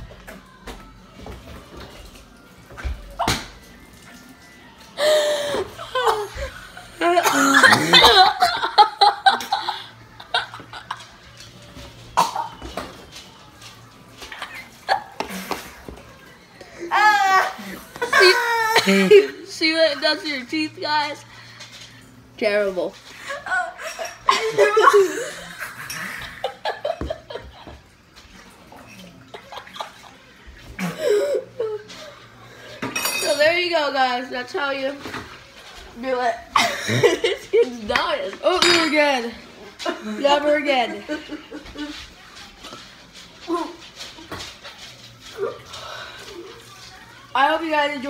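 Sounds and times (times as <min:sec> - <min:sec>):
boys laughing: 0:05.0 - 0:11.1, 0:17.0 - 0:19.5, 0:23.2 - 0:27.8, 0:36.5 - 0:37.8, 0:39.8 - 0:42.0
boys coughing: 0:05.5 - 0:08.7, 0:12.2 - 0:12.6, 0:17.4 - 0:19.3
boy laughing: 0:23.3 - 0:27.4.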